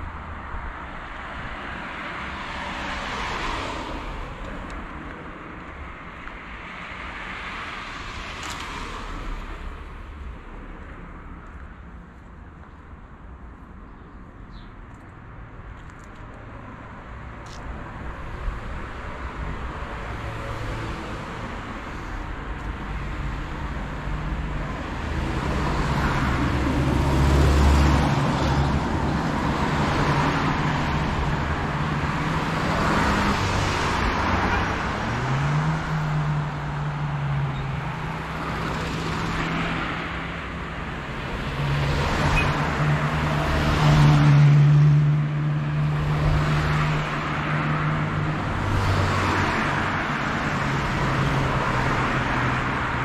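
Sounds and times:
cars passing: 0.0s - 53.0s.

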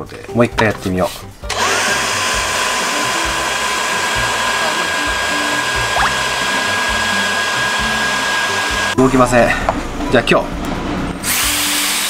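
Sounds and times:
electric blower motor whine: 1.5s - 9.0s.

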